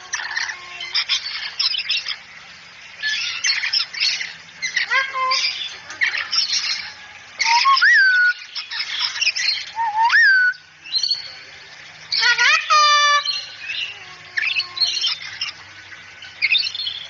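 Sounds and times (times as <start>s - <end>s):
cockatoo whistle-like calls: 7.4s - 8.4s, 9.7s - 10.6s.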